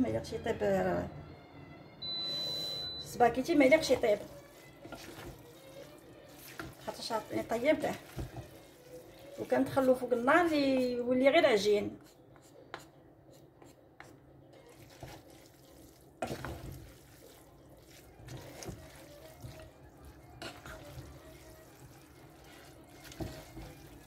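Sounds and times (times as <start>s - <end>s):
wet squelching of pasta: 3.5s - 10.3s, 14.6s - 24.0s.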